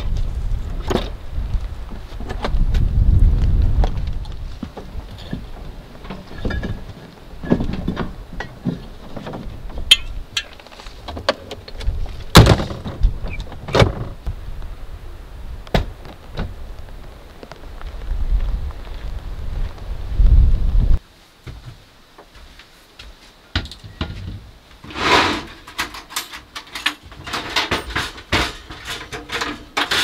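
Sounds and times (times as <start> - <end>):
doors and gear clicking and thumping: 4.6 - 14.3, 23.6 - 30.0.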